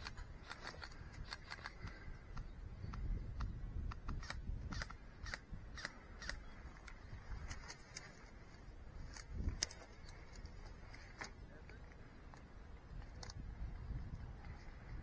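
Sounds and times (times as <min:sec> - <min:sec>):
sharp clicks and snaps: 0:00.0 - 0:08.1, 0:13.0 - 0:13.4.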